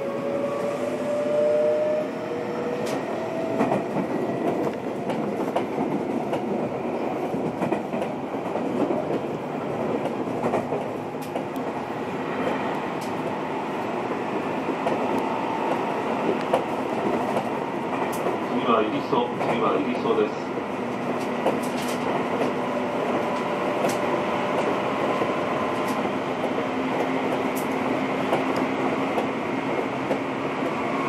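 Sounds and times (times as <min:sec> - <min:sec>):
train wheels rolling on rails: 0:00.0 - 0:31.0
rail-joint clicks: 0:02.8 - 0:09.2, 0:09.8 - 0:11.8, 0:12.4 - 0:13.3, 0:14.8 - 0:18.5, 0:19.2 - 0:20.2, 0:20.9 - 0:30.8.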